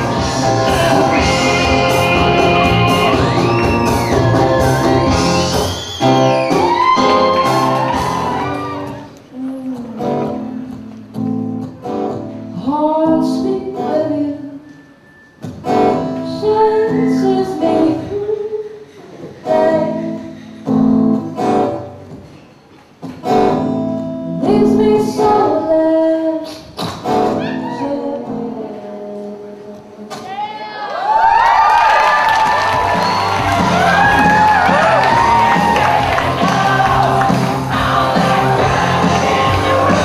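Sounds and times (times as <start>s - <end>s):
woman singing: 0.0s - 3.6s, 9.3s - 11.2s, 12.6s - 14.7s, 16.2s - 18.8s, 19.4s - 20.4s, 24.3s - 26.7s, 27.4s - 30.3s, 35.5s - 40.0s.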